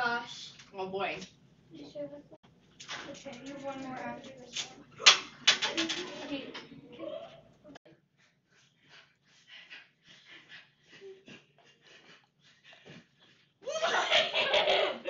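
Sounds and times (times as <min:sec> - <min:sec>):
breathy laughter: 0:10.2 - 0:15.0
loud laughter: 0:13.6 - 0:15.0.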